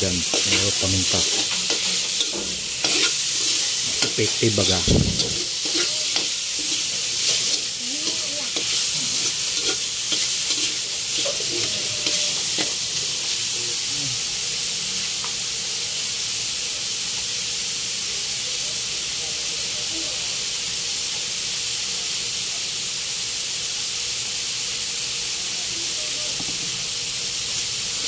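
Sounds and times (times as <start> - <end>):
meat sizzling in a wok: 0.0 - 28.0
metal spoon scraping and stirring: 0.2 - 12.8.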